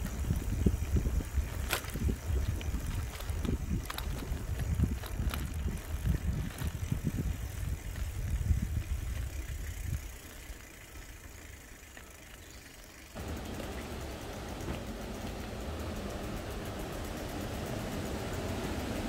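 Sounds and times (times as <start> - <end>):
bicycle rumbling on tarmac: 0.0 - 19.0
bike rattling and knocking: 0.0 - 19.0.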